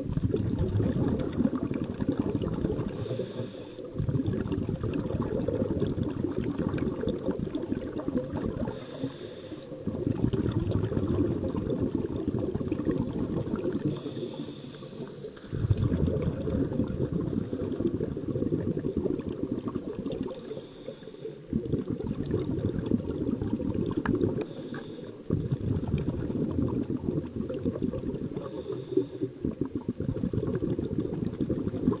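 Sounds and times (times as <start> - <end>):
exhaled bubbles underwater: 0.0 - 32.0
regulator inhale hissing: 2.9 - 4.0, 8.6 - 9.9, 13.8 - 15.6, 20.3 - 21.5, 24.4 - 25.3, 28.4 - 29.4.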